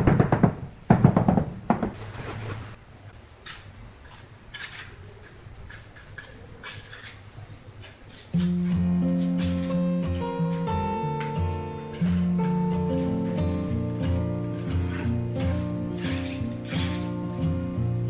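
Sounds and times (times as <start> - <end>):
trowel scraping wet mortar: 3.4 - 10.8, 11.4 - 17.7.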